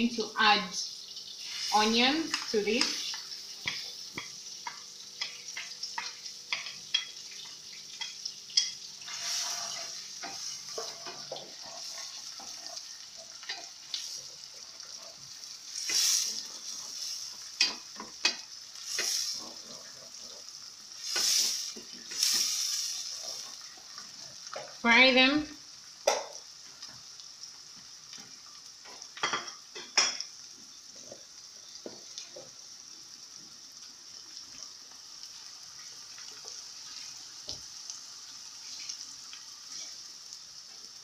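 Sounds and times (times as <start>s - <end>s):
onions sizzling in a pan: 0.0s - 41.0s
spatula scraping a pan: 1.4s - 20.3s, 21.0s - 23.8s.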